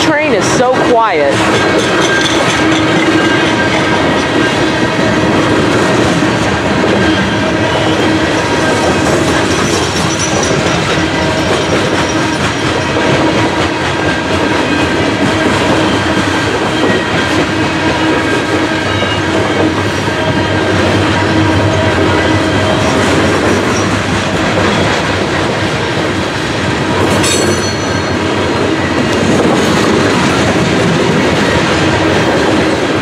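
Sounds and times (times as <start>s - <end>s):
freight train rolling past: 0.0s - 33.0s.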